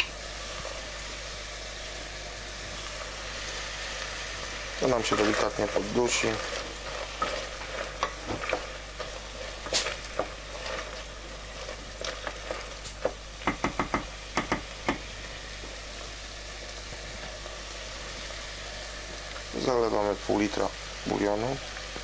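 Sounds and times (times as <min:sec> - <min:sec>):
food sizzling in oil: 0:00.0 - 0:22.0
utensil knocking against pot: 0:13.4 - 0:15.0.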